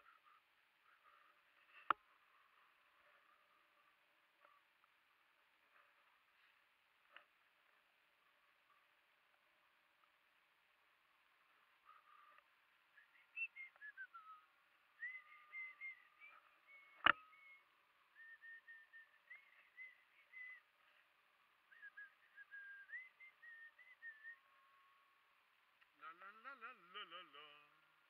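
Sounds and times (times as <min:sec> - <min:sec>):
person whistling a slow tune: 0:13.0 - 0:17.6, 0:18.2 - 0:20.6, 0:21.7 - 0:24.5.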